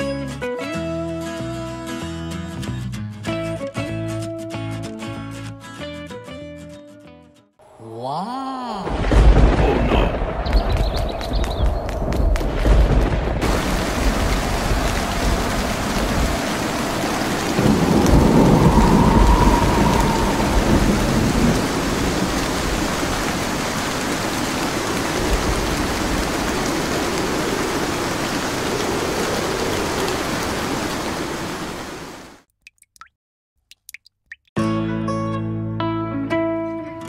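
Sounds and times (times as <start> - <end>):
heavy rain: 8.5 - 32.4
low rumble of thunder: 8.9 - 23.7.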